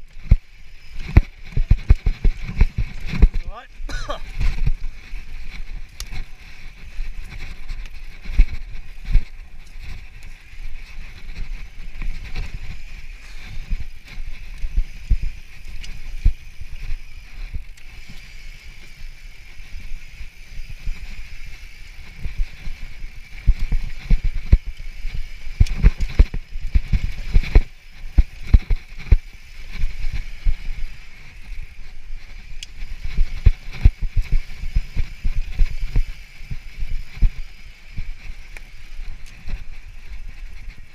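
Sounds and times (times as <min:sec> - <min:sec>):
tyres crunching on dry dirt: 0:00.0 - 0:40.9
bike thuds and rattles: 0:00.1 - 0:16.8.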